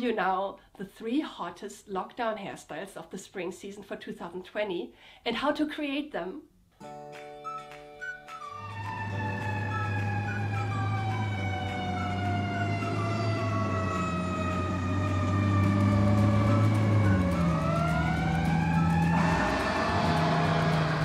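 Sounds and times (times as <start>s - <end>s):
emergency siren wailing: 8.4s - 21.0s
harsh siren blast: 8.4s - 21.0s.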